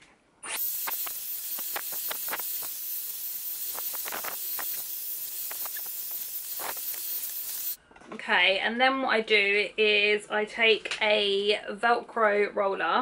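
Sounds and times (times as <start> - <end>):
hair styler blowing hot air: 0.5 - 7.8.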